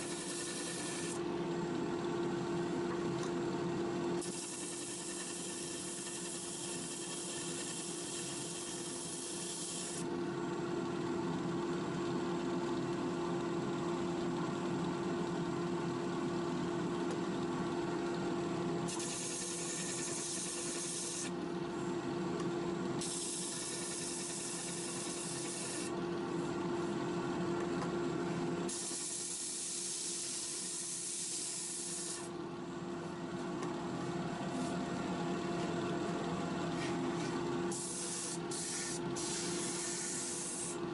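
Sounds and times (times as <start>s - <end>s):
wood rasping on sanding disc: 0.0s - 1.2s.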